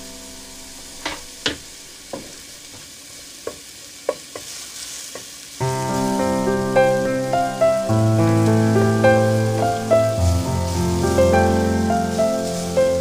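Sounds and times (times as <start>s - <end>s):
onions sizzling in a pan: 0.0s - 13.0s
wooden spatula knocking on pan: 1.0s - 4.5s.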